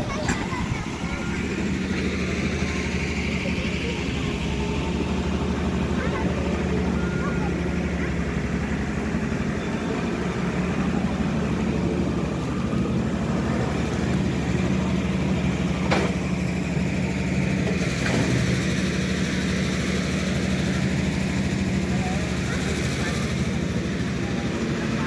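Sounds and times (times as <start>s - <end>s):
diesel engine droning: 0.0s - 25.0s.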